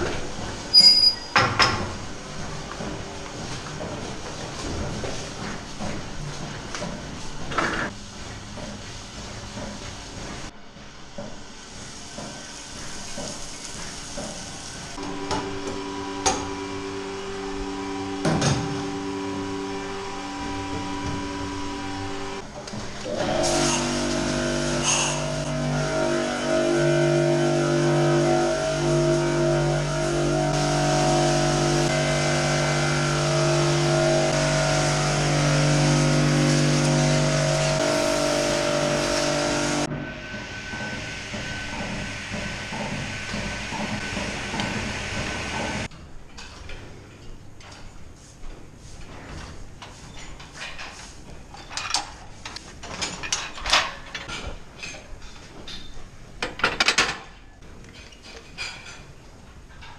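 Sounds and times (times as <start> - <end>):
water spray hissing on tiles: 11.6 - 15.0, 30.0 - 39.9
steady machine hum: 14.4 - 45.9.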